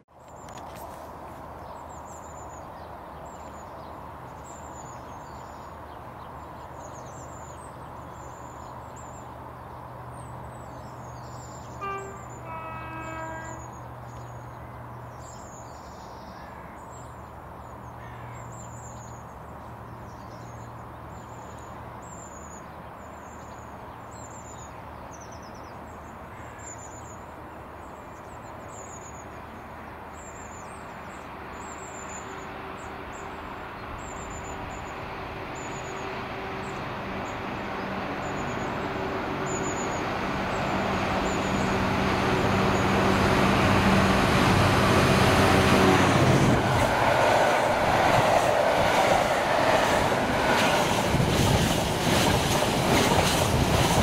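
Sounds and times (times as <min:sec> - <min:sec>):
two-tone train horn: 0:11.6 - 0:13.9
locomotive engine droning: 0:32.4 - 0:54.0.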